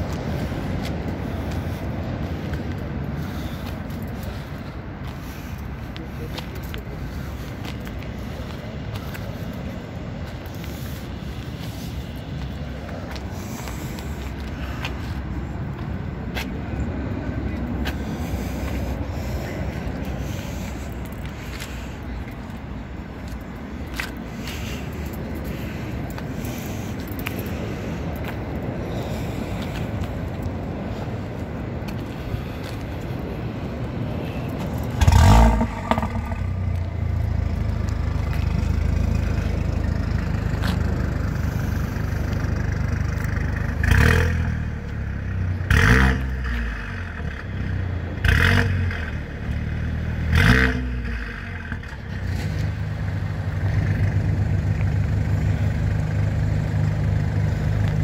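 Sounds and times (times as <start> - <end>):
car engine idling: 17.6 - 58.0
car engine starting: 34.5 - 58.0
engine revving: 34.9 - 39.6, 43.2 - 44.8, 45.6 - 47.6, 48.2 - 56.4.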